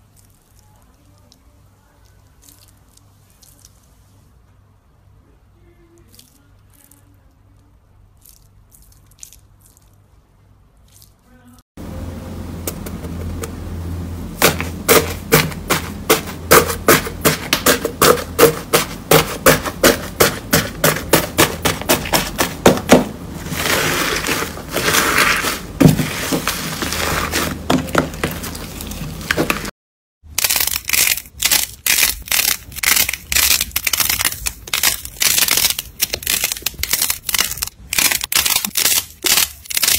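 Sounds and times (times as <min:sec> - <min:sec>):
slime crackling and popping: 0:00.0 - 0:03.8, 0:08.2 - 0:10.0, 0:30.3 - 0:39.9.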